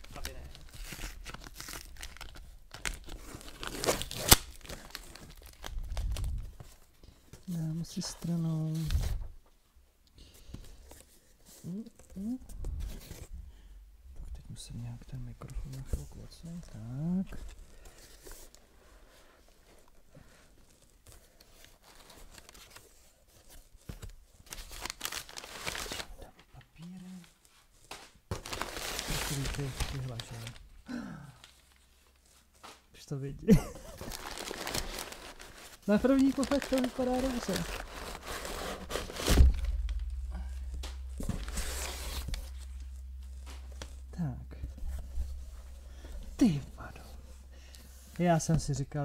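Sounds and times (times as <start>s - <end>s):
cardboard parcel being opened: 0.0s - 9.3s, 19.8s - 26.2s, 27.0s - 32.6s, 33.6s - 48.7s
packing paper rustling and crinkling: 0.0s - 9.4s, 15.6s - 32.9s, 33.5s - 49.0s
dull thump: 38.7s - 46.4s.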